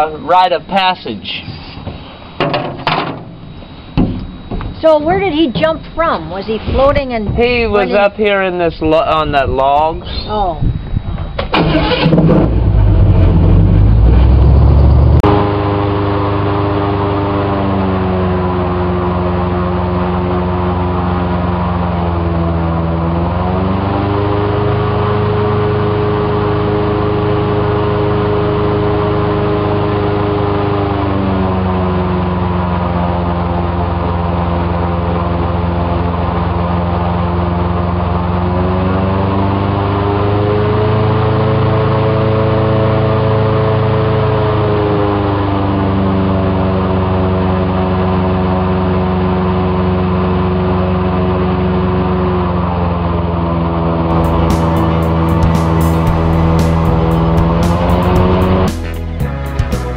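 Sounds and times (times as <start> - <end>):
airboat engine and propeller: 12.3 - 59.0.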